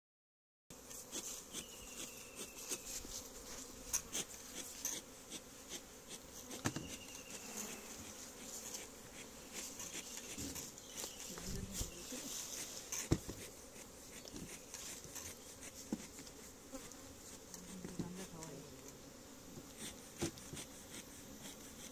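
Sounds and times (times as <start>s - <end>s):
bees buzzing: 0.7s - 21.9s
wooden hive frames knocking: 6.6s - 7.0s, 13.0s - 13.5s.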